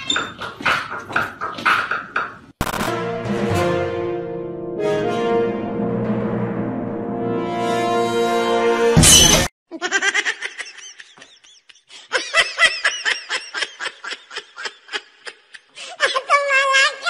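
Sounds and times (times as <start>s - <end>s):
person laughing: 9.7s - 16.3s.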